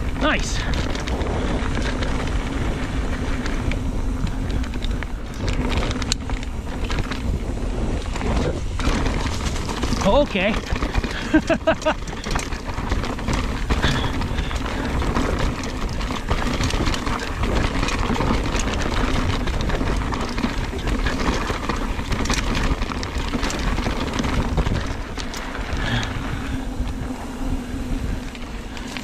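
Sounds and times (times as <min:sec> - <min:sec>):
bike tyres rolling and rattling: 0:00.0 - 0:29.0
wind noise on microphone: 0:00.0 - 0:29.0.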